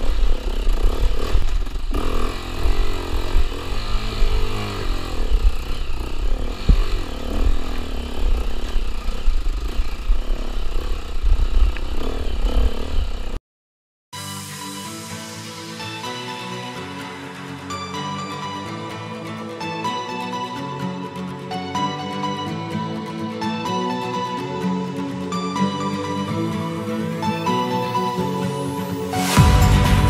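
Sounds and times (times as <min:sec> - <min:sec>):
dirt bike engine revving: 0:00.0 - 0:13.4
music: 0:14.2 - 0:30.0.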